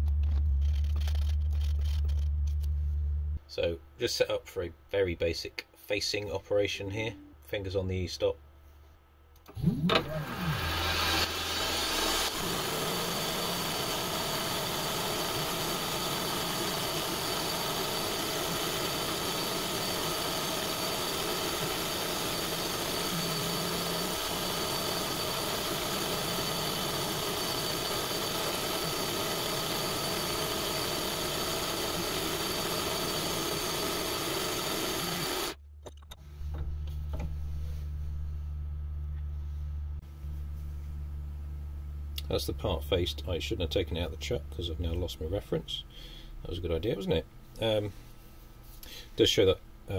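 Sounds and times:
low machine hum: 0:00.0 - 0:03.9, 0:09.4 - 0:49.9
milling machine cutting metal: 0:09.8 - 0:35.6.

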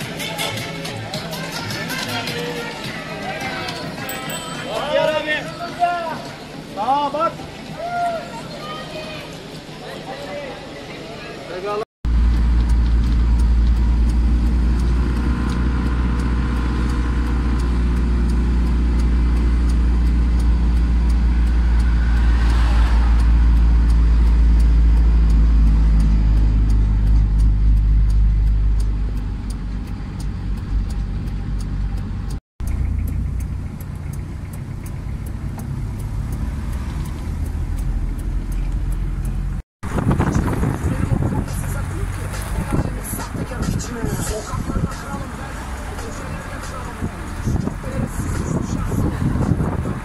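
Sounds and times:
car engine and road rumble: 0:11.6 - 0:50.0.

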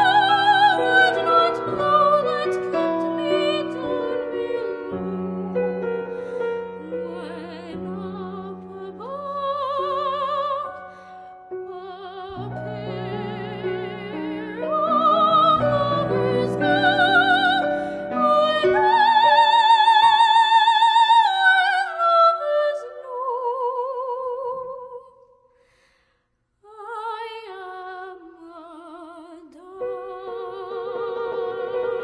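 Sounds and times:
grand piano chords: 0:00.0 - 0:20.4
soprano singing with vibrato: 0:00.0 - 0:25.2, 0:26.6 - 0:32.0.

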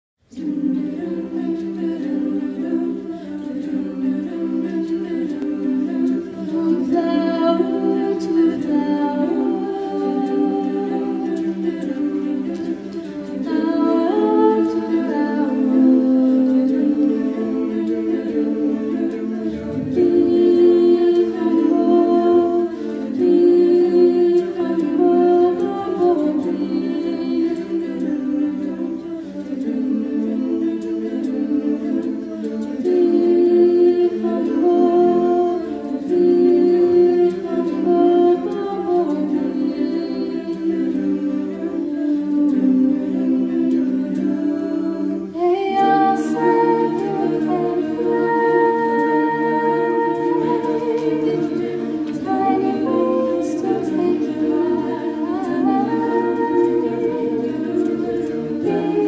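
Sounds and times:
choir singing a cappella: 0:00.2 - 0:59.0.

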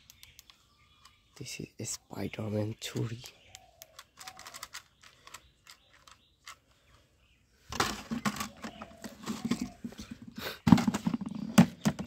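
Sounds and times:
plastic toy guns clattering: 0:03.9 - 0:06.6, 0:07.7 - 0:09.8, 0:10.7 - 0:12.0.

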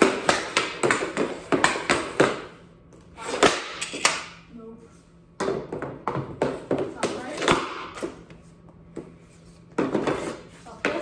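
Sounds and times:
hockey stick tapping puck: 0:00.0 - 0:02.6, 0:03.3 - 0:04.3, 0:05.4 - 0:09.1, 0:09.7 - 0:11.0
puck shot crack: 0:03.3 - 0:04.4, 0:05.4 - 0:08.1.

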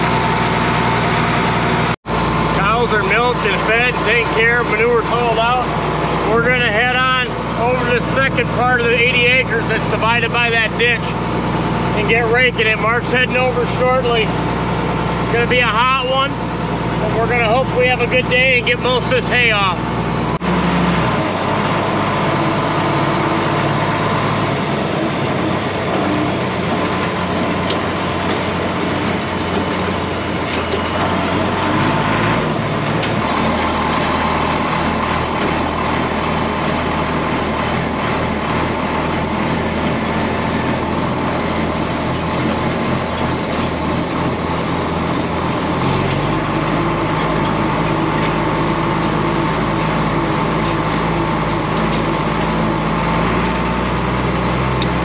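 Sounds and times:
tractor engine running: 0:00.0 - 0:55.0.

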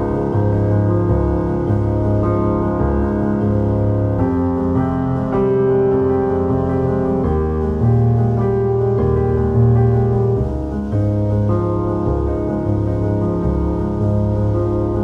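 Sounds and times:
slow piano chords: 0:00.0 - 0:15.0.

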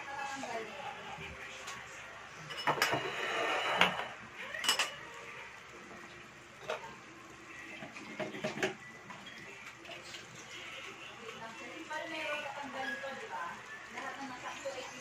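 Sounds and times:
dishes and utensils clinking: 0:02.4 - 0:05.1, 0:06.6 - 0:07.0, 0:07.8 - 0:10.2.

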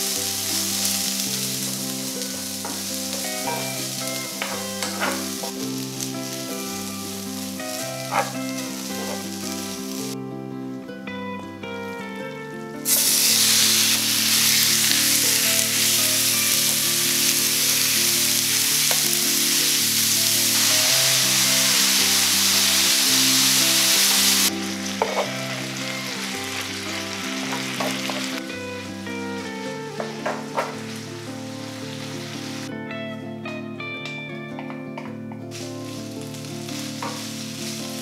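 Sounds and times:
beef sizzling in a frying pan: 0:00.0 - 0:10.2, 0:12.9 - 0:32.7, 0:35.5 - 0:38.0
background music: 0:00.0 - 0:38.0.

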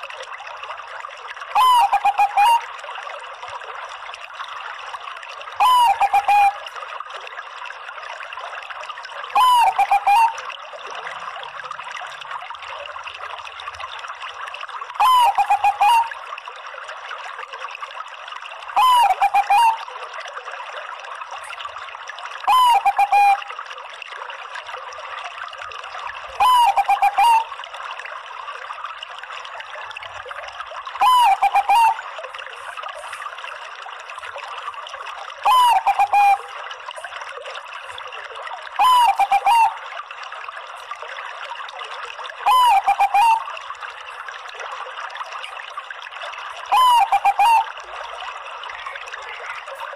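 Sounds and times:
trickle of running water: 0:00.0 - 0:49.9
dove cooing: 0:01.6 - 0:02.6, 0:05.6 - 0:06.6, 0:09.4 - 0:10.4, 0:15.0 - 0:16.1, 0:18.8 - 0:19.8, 0:22.5 - 0:23.4, 0:26.4 - 0:27.5, 0:31.0 - 0:32.0, 0:35.5 - 0:36.4, 0:42.5 - 0:43.4, 0:46.7 - 0:47.7.

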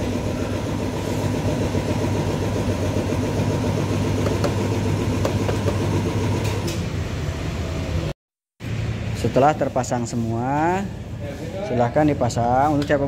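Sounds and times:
scooter engine idling: 0:00.0 - 0:06.4.

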